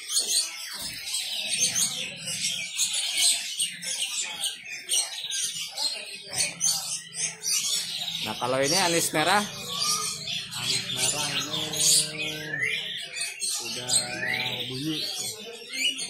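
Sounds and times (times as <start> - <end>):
songbirds chirping and whistling: 0.0 - 16.0.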